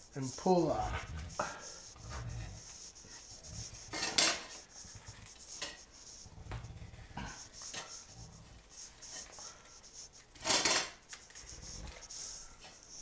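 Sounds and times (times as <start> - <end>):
pineapple corer scraping fruit: 0.0 - 9.4.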